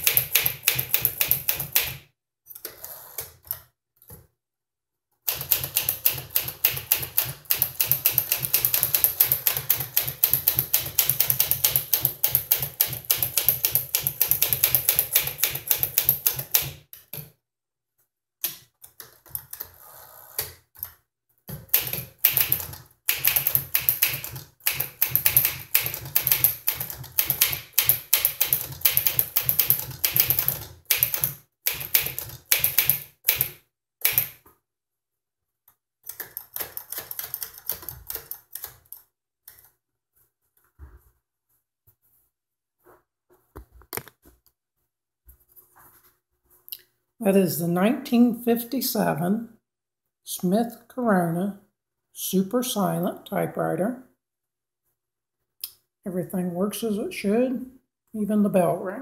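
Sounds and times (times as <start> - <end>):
manual typewriter typing: 0.0 - 2.0, 5.3 - 17.2, 21.7 - 34.4, 36.1 - 38.9.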